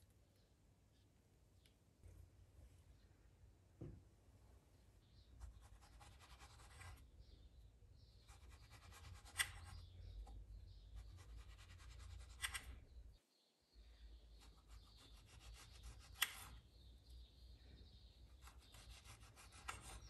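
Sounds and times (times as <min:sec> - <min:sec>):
knife slicing strawberries: 0:08.4 - 0:09.8, 0:11.1 - 0:12.8, 0:14.6 - 0:16.6, 0:18.4 - 0:20.0.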